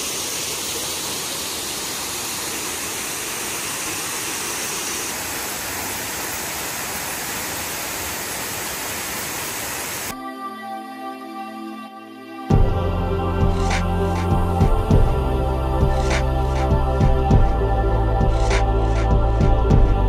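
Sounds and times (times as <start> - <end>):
waterfall rushing: 0.0 - 10.1.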